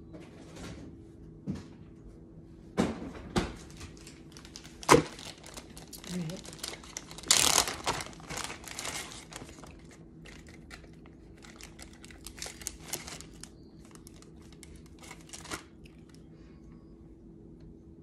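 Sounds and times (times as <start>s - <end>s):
plastic bag crinkling: 3.7s - 16.2s.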